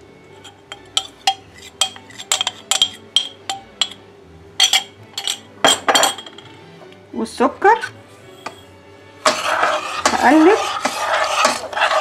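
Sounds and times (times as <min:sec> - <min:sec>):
metal ladle clinking on saucepan: 0:00.4 - 0:04.0, 0:04.6 - 0:06.5.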